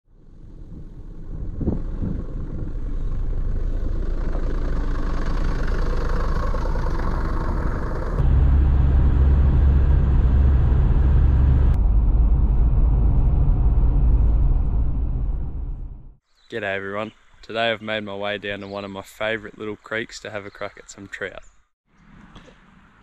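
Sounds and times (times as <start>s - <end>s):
low rumble: 0.1s - 16.2s.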